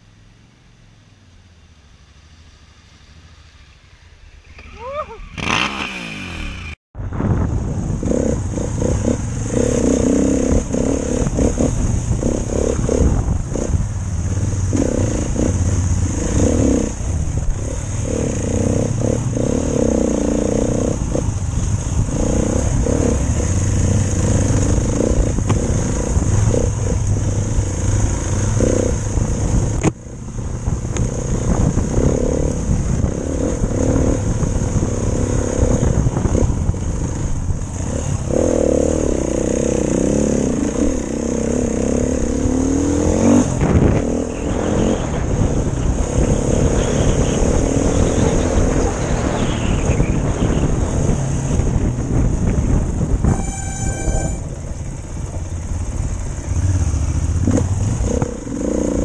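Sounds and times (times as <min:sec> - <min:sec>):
motorcycle engine revving: 0:04.5 - 0:59.0.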